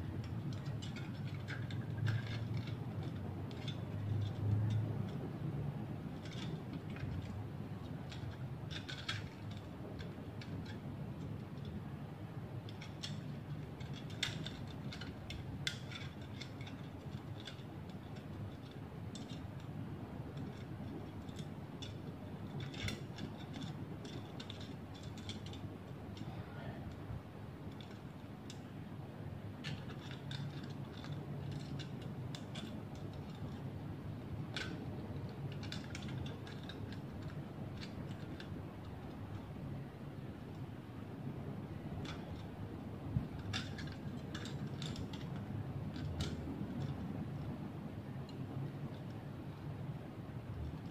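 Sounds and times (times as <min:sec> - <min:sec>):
metal strips crinkling and clicking: 0:00.0 - 0:49.7
steady low hum: 0:00.0 - 0:50.9.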